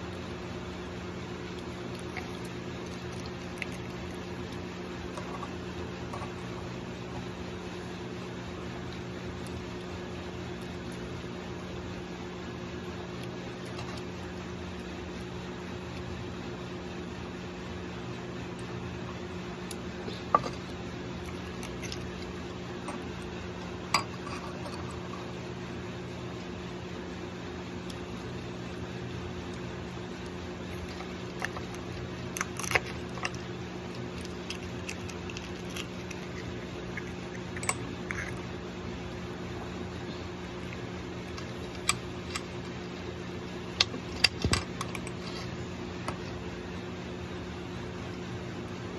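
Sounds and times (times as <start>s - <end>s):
eggshell crackling as peeled: 0.0s - 17.7s, 18.4s - 46.3s
steady machine hum: 0.0s - 48.9s
spoon scraping eggshell: 1.5s - 6.8s, 20.3s - 25.3s, 29.5s - 42.8s.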